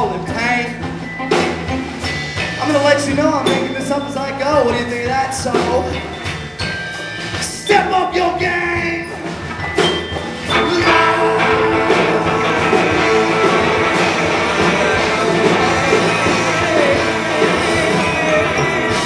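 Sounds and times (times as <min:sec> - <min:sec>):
live rock band playing: 0:00.0 - 0:19.0
strummed guitar: 0:10.4 - 0:19.0.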